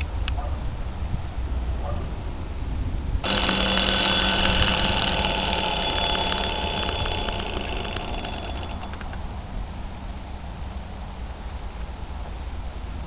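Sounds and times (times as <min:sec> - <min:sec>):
alarm clock bell ringing: 0:03.2 - 0:09.0.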